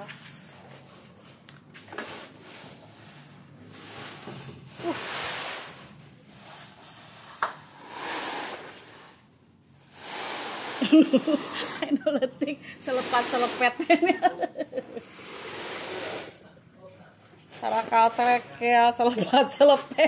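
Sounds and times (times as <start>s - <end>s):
plastic tarpaulin rustling: 12.8s - 14.0s, 17.5s - 19.0s.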